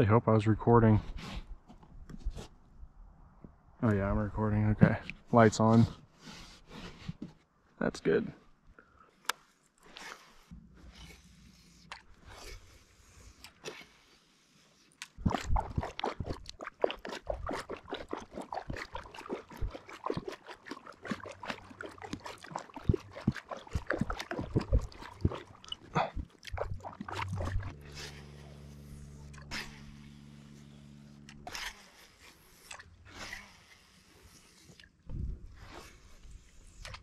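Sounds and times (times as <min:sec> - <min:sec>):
water splashing and sloshing: 0:09.1 - 0:37.0
steady low hum: 0:21.2 - 0:37.0.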